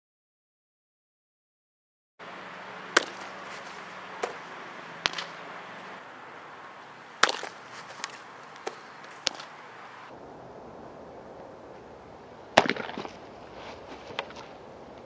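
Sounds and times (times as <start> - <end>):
steady background hiss: 2.2 - 12.6
baseball smacking into leather mitt: 2.3 - 9.9
faint sharp knocks: 7.2 - 9.6.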